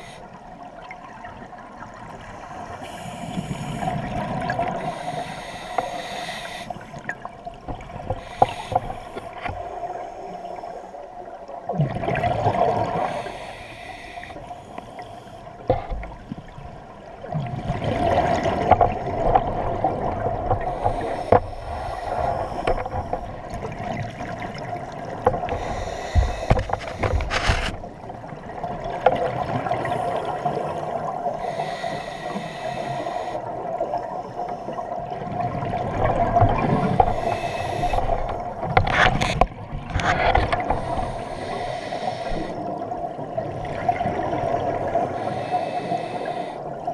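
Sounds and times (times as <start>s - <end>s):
scuba regulator breathing bubbles: 2.5s - 7.0s, 8.0s - 10.0s, 12.2s - 15.8s, 20.6s - 23.9s, 25.4s - 27.8s, 29.5s - 33.5s, 36.5s - 39.4s, 40.0s - 42.8s, 43.8s - 46.8s.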